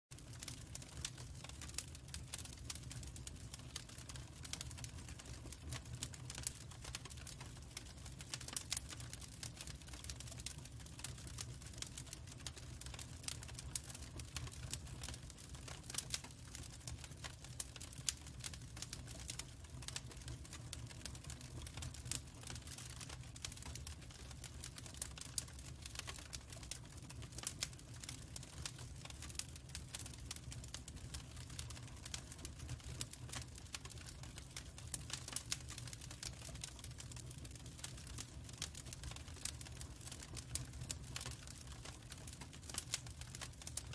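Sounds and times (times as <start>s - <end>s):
wood fire crackling and popping: 0.1s - 43.9s.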